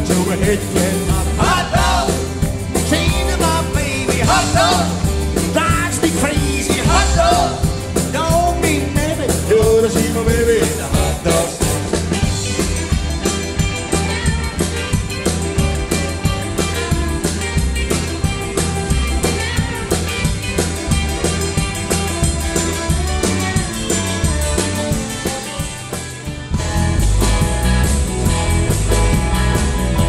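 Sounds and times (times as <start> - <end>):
man singing: 0.0 - 11.9
rock and roll band playing: 0.0 - 30.0.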